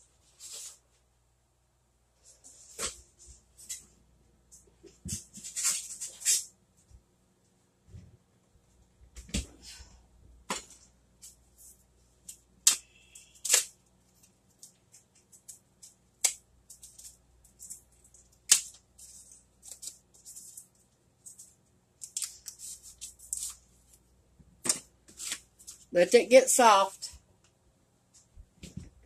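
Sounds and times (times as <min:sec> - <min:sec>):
paper wrapper crinkling: 0:11.3 - 0:24.0.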